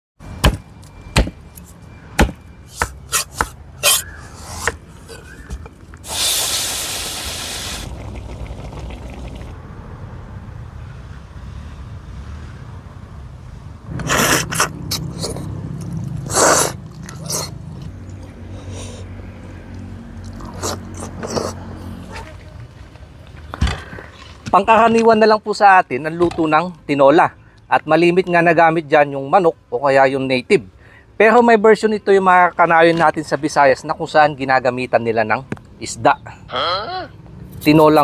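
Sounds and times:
cleaver chopping on wooden board: 0:01.2 - 0:01.4, 0:02.2 - 0:04.8
short hiss: 0:06.0 - 0:07.9.

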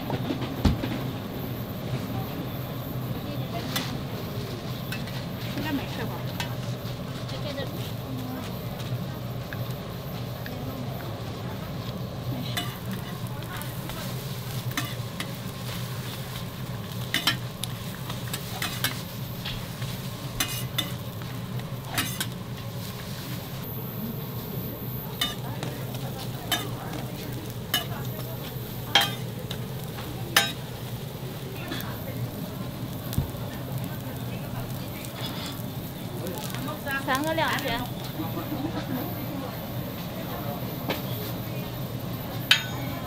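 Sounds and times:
steady low hum: 0:00.0 - 0:43.0
pancakes sizzling in oil: 0:03.3 - 0:43.0
metal spatula clinking on griddle: 0:12.5 - 0:13.1, 0:14.7 - 0:15.4, 0:17.0 - 0:17.6, 0:18.2 - 0:19.0, 0:20.3 - 0:21.0, 0:21.9 - 0:22.4, 0:25.2 - 0:28.2, 0:28.9 - 0:30.7, 0:42.5 - 0:43.0.

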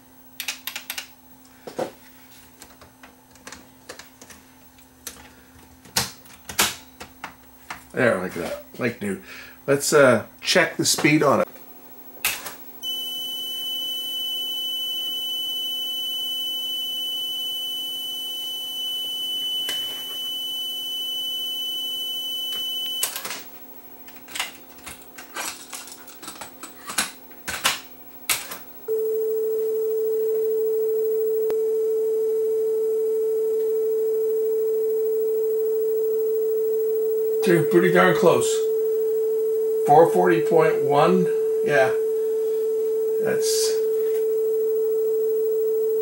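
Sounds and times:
steady test tone: 0:28.8 - 0:46.0.

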